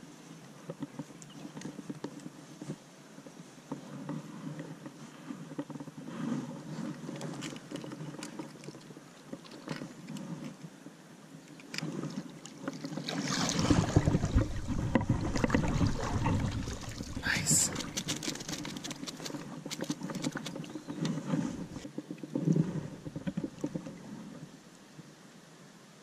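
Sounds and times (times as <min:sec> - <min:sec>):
faint water: 0:00.0 - 0:26.0
fish thrashing and splashing: 0:11.7 - 0:24.0
fishing tackle handling: 0:12.8 - 0:22.3.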